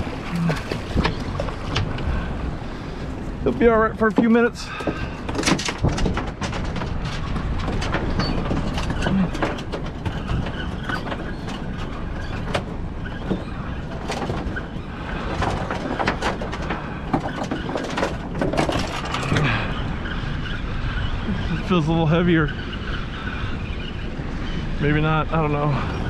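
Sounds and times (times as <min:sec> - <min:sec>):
water lapping boat: 0:00.0 - 0:26.0
wind: 0:00.0 - 0:26.0
sharp clicks and knocks: 0:04.0 - 0:19.8.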